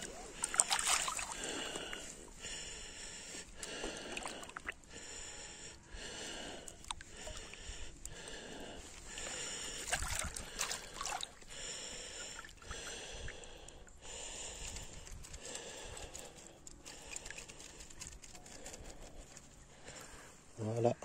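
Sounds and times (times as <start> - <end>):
water sloshing and splashing: 0.0 - 2.1, 3.6 - 4.8, 6.7 - 13.6.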